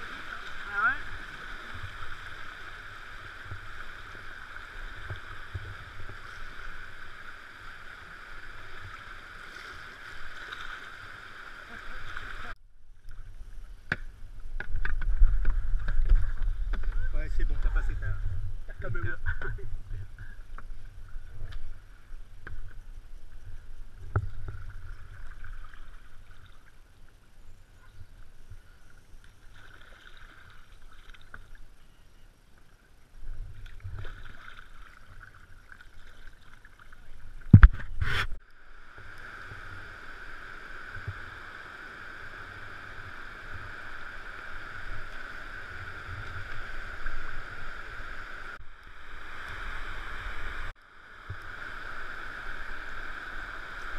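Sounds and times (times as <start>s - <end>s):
paddle strokes splashing: 29.3s - 31.7s, 33.5s - 38.4s.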